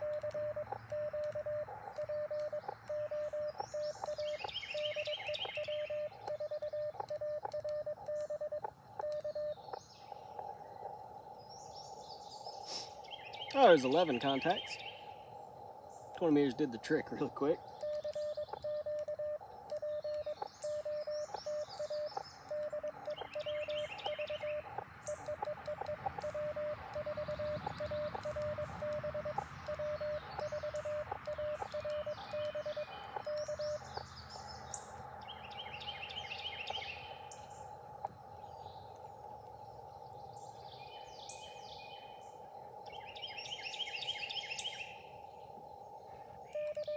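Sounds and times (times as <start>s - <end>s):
morse code tone: 0.0s - 9.6s, 17.8s - 33.8s, 46.5s - 46.9s
birds chirping: 0.0s - 46.9s
radio receiver hiss: 0.0s - 46.9s.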